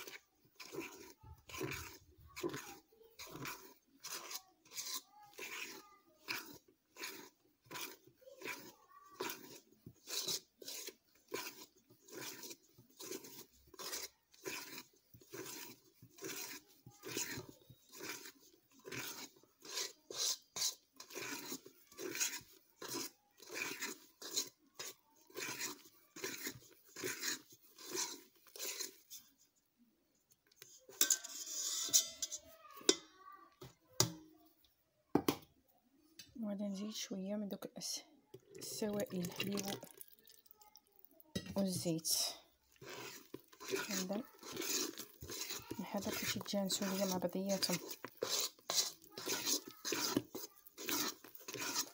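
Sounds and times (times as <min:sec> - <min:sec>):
utensil scraping batter in bowl: 0:00.0 - 0:34.2, 0:36.2 - 0:51.9.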